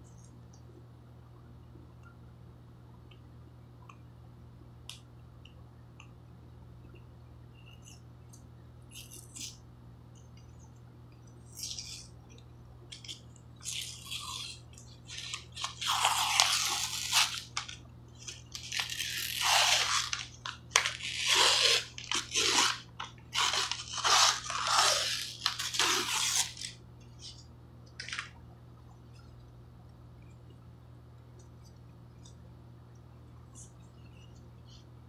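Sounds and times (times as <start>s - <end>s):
wrapper tearing and crinkling: 12.9s - 26.8s.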